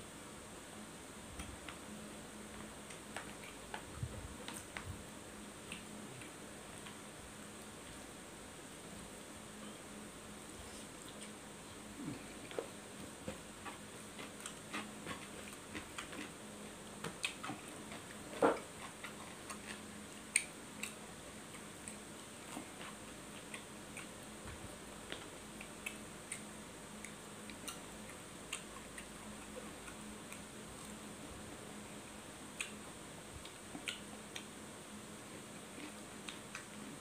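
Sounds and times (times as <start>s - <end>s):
faint steady hum: 0.0s - 37.0s
chewing clicks and smacks: 13.3s - 16.4s, 17.0s - 24.2s, 25.1s - 31.0s, 33.4s - 34.5s.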